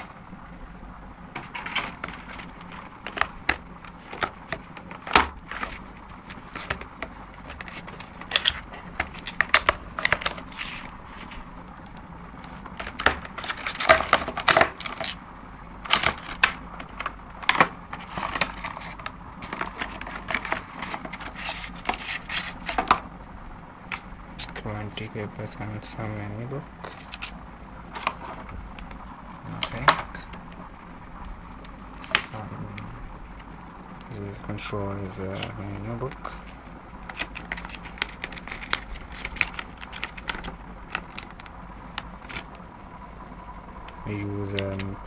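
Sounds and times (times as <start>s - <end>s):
packaging crinkling: 1.4s - 15.2s, 35.3s - 42.7s
cardboard box being unpacked: 15.9s - 23.0s, 35.3s - 42.5s.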